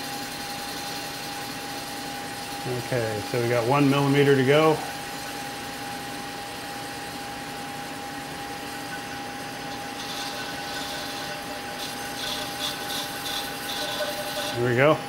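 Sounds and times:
metal lathe humming: 0.0 - 15.0
light scratching: 9.9 - 14.6.

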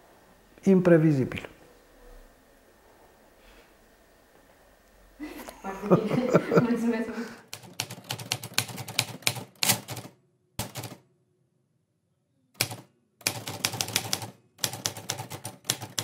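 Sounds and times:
rapid typing key clicks: 7.5 - 11.0, 12.6 - 16.0.

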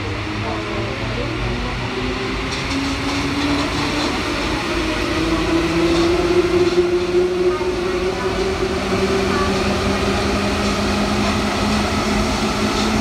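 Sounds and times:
metro train rumbling: 0.0 - 13.0.

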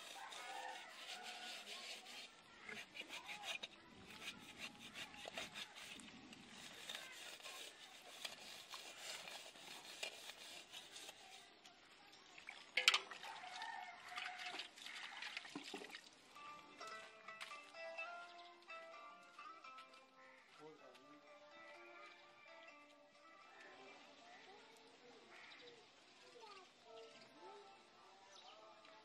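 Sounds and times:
pots being scrubbed: 0.0 - 11.5
metal vessel clanking: 12.8 - 13.2.

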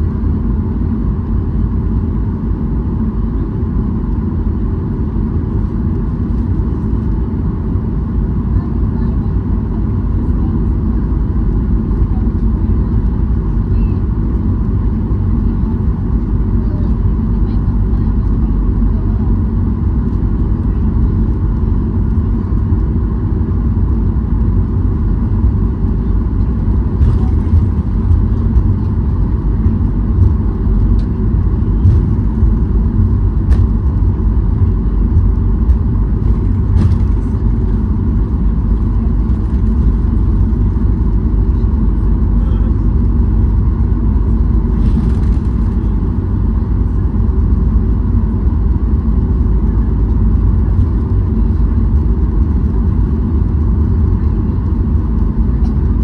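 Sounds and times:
airliner cabin engine rumble: 0.0 - 56.0.

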